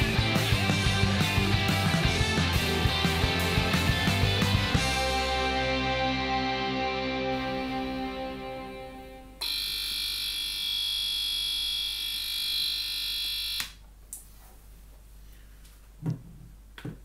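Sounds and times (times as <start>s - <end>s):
egg cooker buzzer: 9.4s - 13.8s
soft knocks: 16.0s - 17.0s.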